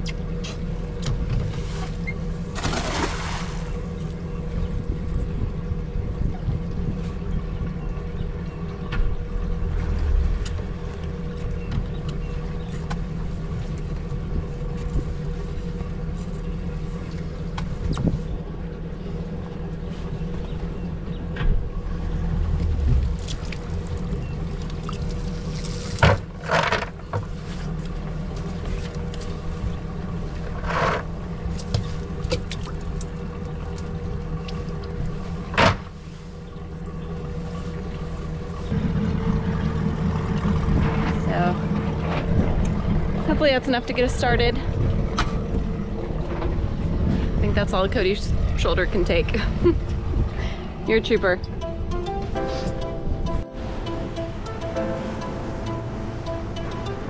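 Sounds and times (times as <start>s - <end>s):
low rumble and hum: 0.0s - 57.0s
net splashing in water: 2.6s - 3.7s.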